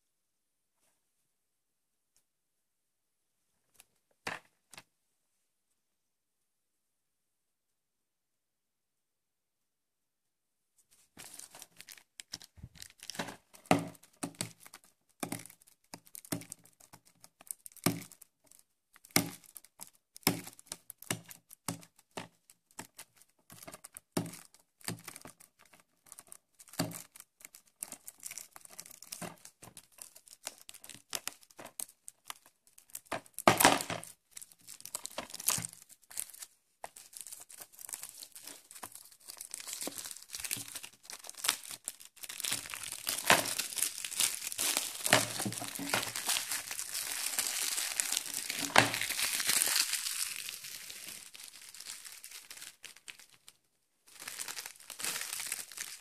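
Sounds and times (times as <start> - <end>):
plastic shrink-wrap crinkling: 11.0 - 56.0
shrink-wrap tearing: 11.2 - 56.0.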